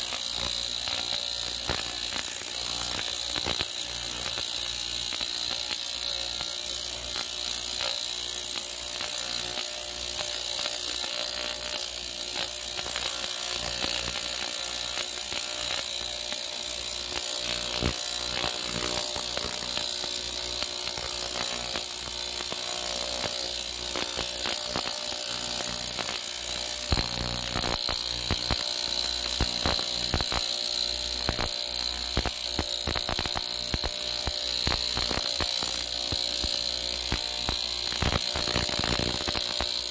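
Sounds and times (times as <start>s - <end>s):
crackling clicks: 20.6s - 39.9s.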